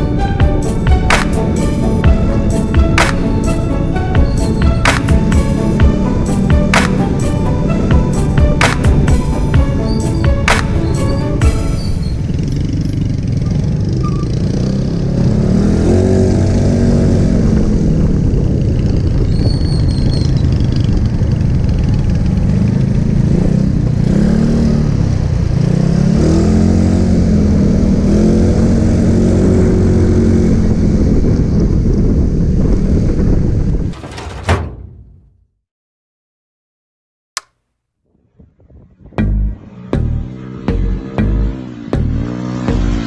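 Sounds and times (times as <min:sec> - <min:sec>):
motorcycle engine revving: 0:04.3 - 0:31.6, 0:39.1 - 0:43.0.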